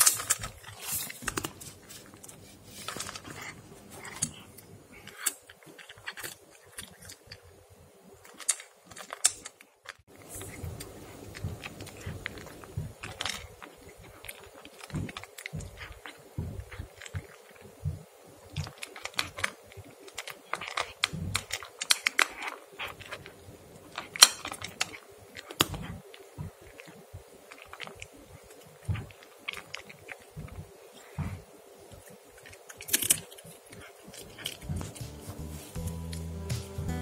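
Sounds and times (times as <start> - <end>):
cat chewing and licking: 0.0 - 36.9.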